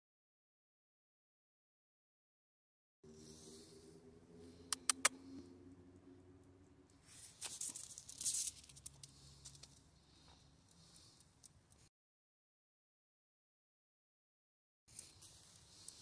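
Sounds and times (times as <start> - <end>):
faint steady hum: 3.0 - 11.9
dog claws scrabbling on icy asphalt: 7.2 - 9.8.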